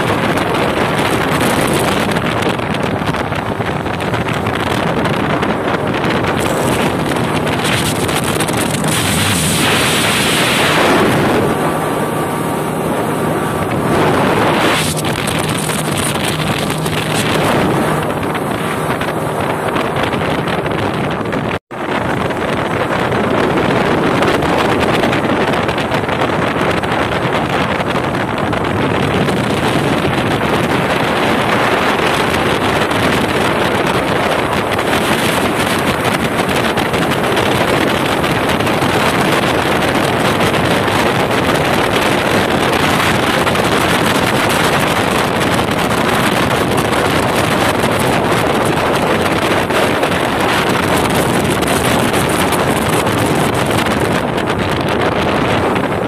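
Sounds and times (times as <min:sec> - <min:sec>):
motorboat engine and water rushing: 0:00.0 - 0:56.0
wind buffeting microphone: 0:00.0 - 0:56.0.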